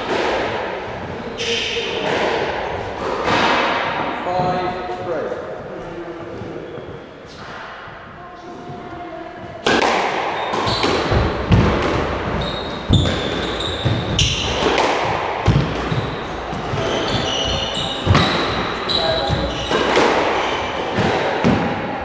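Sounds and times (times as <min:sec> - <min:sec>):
squash ball smacking rackets and walls: 0:00.0 - 0:04.6, 0:07.3 - 0:22.0
trainers squeaking on wooden floor: 0:12.2 - 0:14.8, 0:15.5 - 0:20.8.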